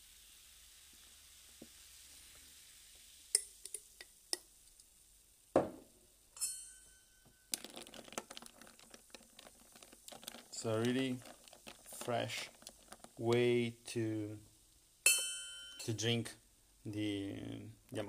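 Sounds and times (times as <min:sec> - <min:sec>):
tonic water fizzing over ice: 0:00.0 - 0:04.8, 0:07.4 - 0:14.3
thud: 0:05.6 - 0:05.9
ringing clink: 0:06.4 - 0:07.5, 0:15.1 - 0:15.9
dense crackle: 0:07.4 - 0:14.8.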